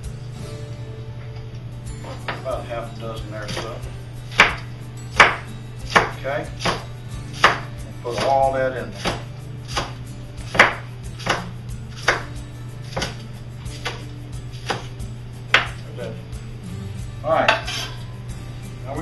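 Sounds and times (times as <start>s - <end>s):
knife chopping on wooden board: 3.5s - 15.8s
scraping onions into metal bowl: 17.4s - 18.1s.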